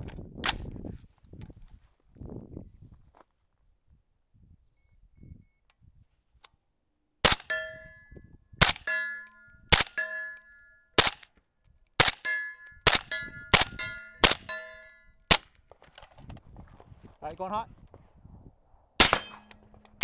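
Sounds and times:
suppressed rifle shots: 0:07.2 - 0:07.7, 0:08.6 - 0:10.3, 0:11.0 - 0:11.2, 0:12.0 - 0:15.5, 0:19.0 - 0:19.8
steel target ringing: 0:07.4 - 0:08.1, 0:08.8 - 0:10.9, 0:12.2 - 0:15.1, 0:19.0 - 0:19.7.

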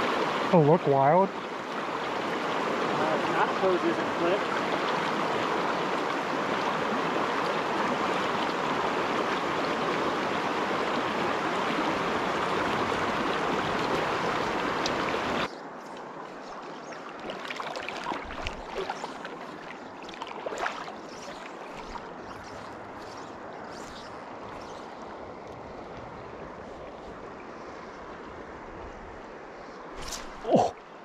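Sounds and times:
stream rushing over rocks: 0:00.0 - 0:27.4
small water splashes: 0:10.6 - 0:27.2.

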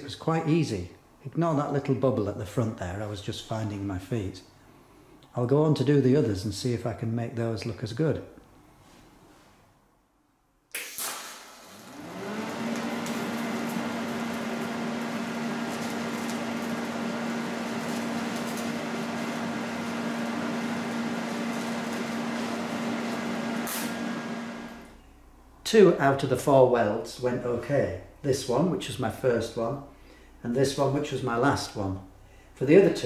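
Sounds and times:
welding arc striking crackle: 0:10.7 - 0:11.9, 0:12.5 - 0:24.9
welder click: 0:10.7 - 0:16.9, 0:23.2 - 0:24.1
welding arc hiss and hum: 0:10.7 - 0:25.0.

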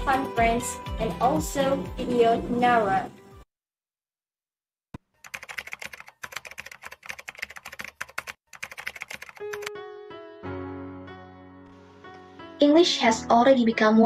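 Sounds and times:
computer keyboard typing: 0:05.2 - 0:09.7.

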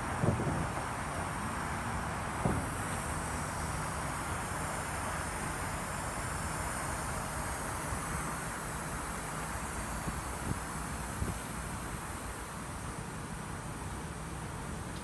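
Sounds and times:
wind noise on microphone: 0:00.0 - 0:01.0, 0:02.4 - 0:02.8, 0:10.0 - 0:11.5.

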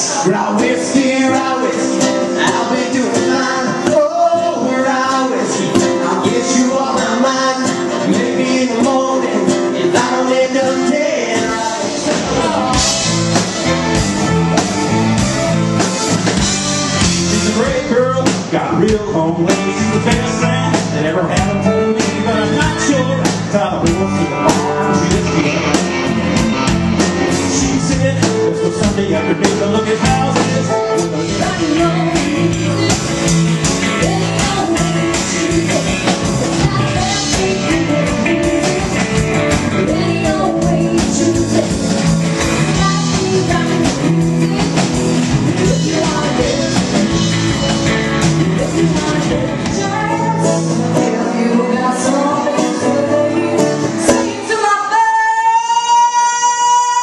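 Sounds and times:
country band playing: 0:00.0 - 0:57.0
woman singing: 0:29.1 - 0:33.0, 0:33.7 - 0:47.3, 0:48.5 - 0:57.0.

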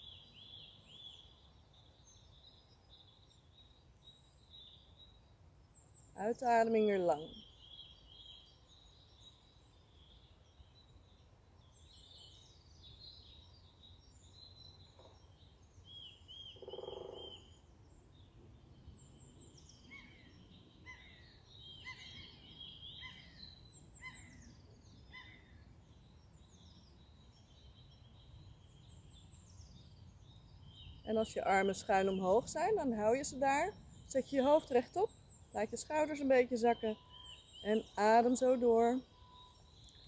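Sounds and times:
songbirds chirping and trilling: 0:00.0 - 0:40.0
lower-pitched bird call: 0:16.4 - 0:17.6, 0:19.8 - 0:24.4, 0:33.4 - 0:40.0.

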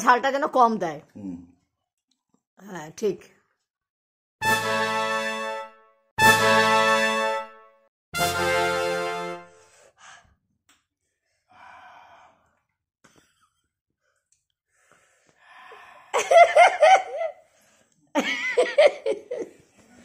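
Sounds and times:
music cue: 0:04.4 - 0:09.6
faint breathy noises: 0:11.0 - 0:12.6.

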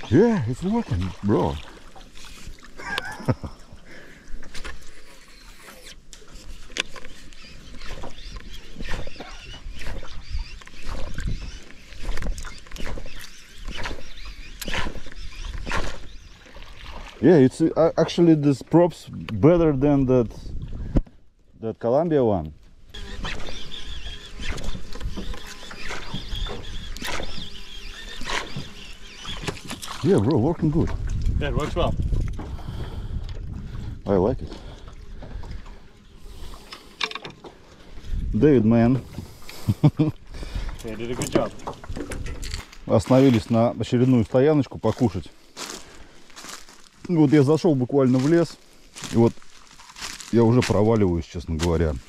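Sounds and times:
water splashes and slaps: 0:00.0 - 0:03.3, 0:08.8 - 0:18.3, 0:28.2 - 0:32.6
lure splashing on water: 0:04.4 - 0:17.2, 0:23.0 - 0:31.4
chirping animal calls: 0:23.0 - 0:29.6.

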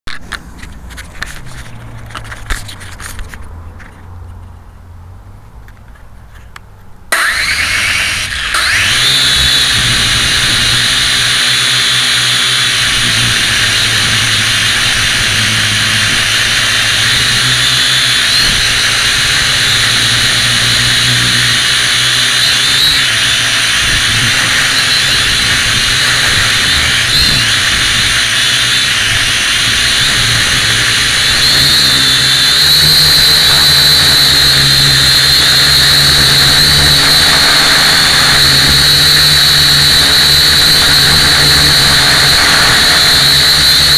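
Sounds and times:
drone motors whining: 0:07.1 - 0:43.9.

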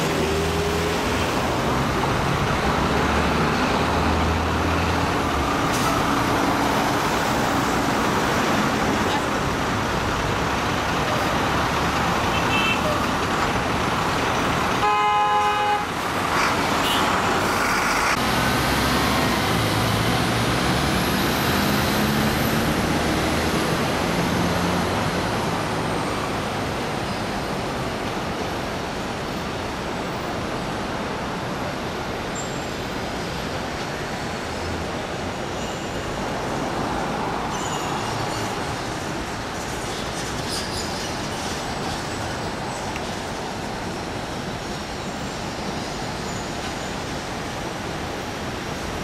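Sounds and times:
passing cars and buses: 0:00.0 - 0:49.0
train on elevated viaduct: 0:00.0 - 0:49.0
vehicle horn honk: 0:14.8 - 0:15.9.

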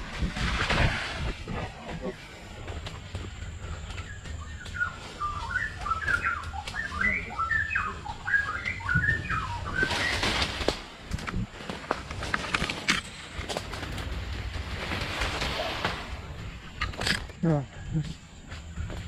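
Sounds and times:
bird chirping: 0:01.9 - 0:10.6
bike clicking and rattling: 0:09.6 - 0:17.4.

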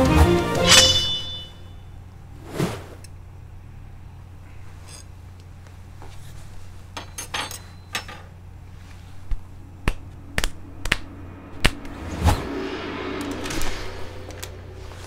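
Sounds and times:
low hum: 0:00.0 - 0:05.6, 0:07.5 - 0:15.0.

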